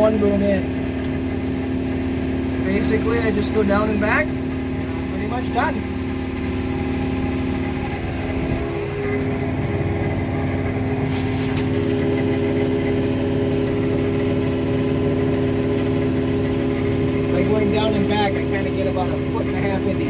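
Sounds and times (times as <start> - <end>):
tractor diesel engine running: 0.0 - 20.0
light ticks: 11.5 - 17.6.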